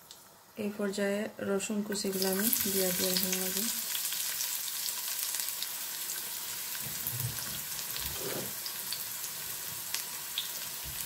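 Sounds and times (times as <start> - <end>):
garlic sizzling in hot oil: 1.9 - 11.0.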